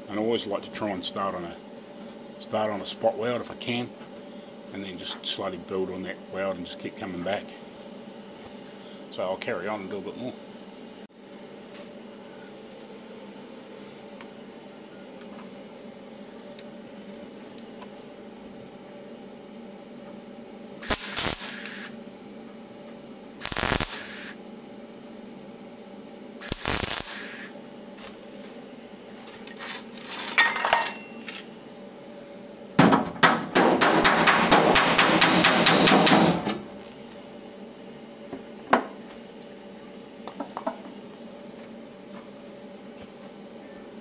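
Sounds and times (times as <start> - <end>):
welder crackling tack welds: 20.8 - 22.1, 23.4 - 24.4, 26.4 - 30.4, 33.4 - 37.0
rapid hammer blows on metal panel: 32.8 - 36.6.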